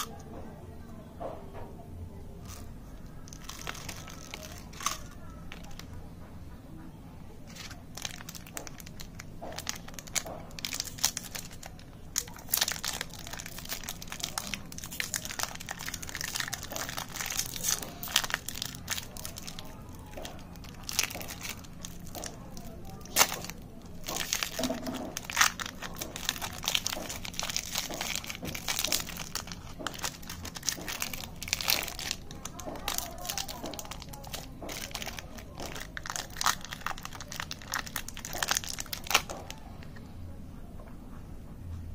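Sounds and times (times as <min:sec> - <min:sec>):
wrapper crinkling and tearing: 0:00.0 - 0:00.2, 0:02.4 - 0:05.9, 0:07.4 - 0:39.9.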